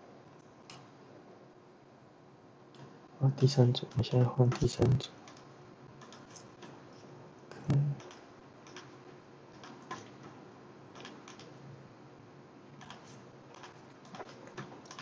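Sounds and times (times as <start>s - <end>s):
mouse and keyboard clicks: 5.3s - 6.8s, 8.0s - 8.9s, 10.9s - 11.5s, 12.8s - 15.0s.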